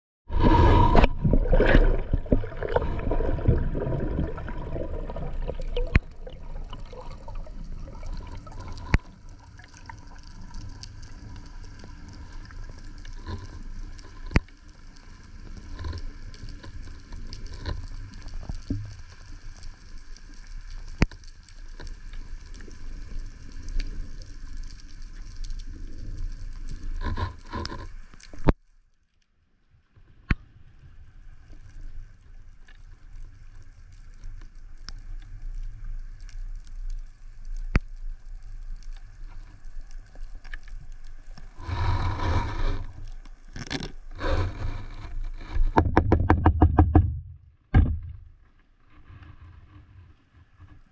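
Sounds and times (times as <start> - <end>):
water rushing underwater: 0.3 - 21.0, 37.2 - 46.2.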